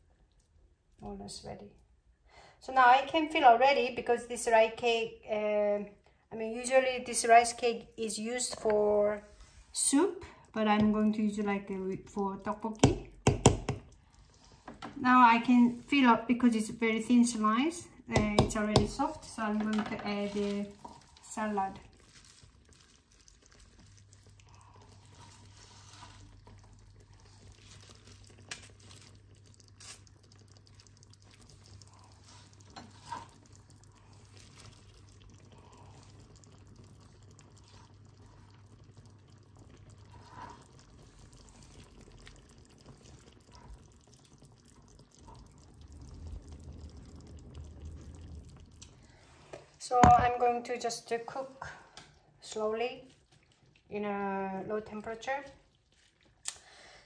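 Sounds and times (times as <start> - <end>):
sauce simmering with pops: 0.0 - 1.0, 2.9 - 57.0
low steady hum: 13.8 - 57.0.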